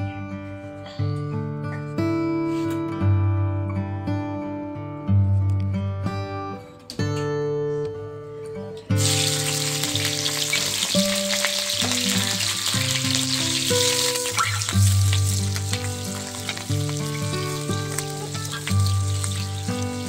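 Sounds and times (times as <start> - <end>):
chillies sizzling in hot oil: 9.0 - 20.0.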